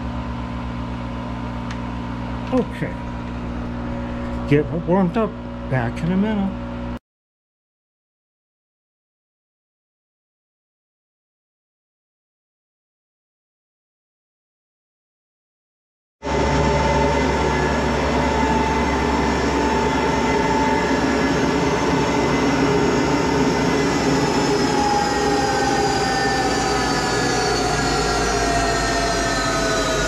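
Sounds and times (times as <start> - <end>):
lathe whining: 16.2 - 30.0.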